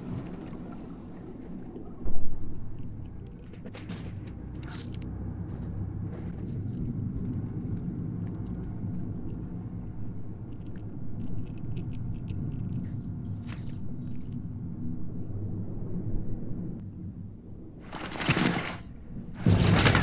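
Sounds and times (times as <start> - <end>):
muffled underwater rumble: 0.0 - 17.9
bullets zipping through water: 17.9 - 20.0.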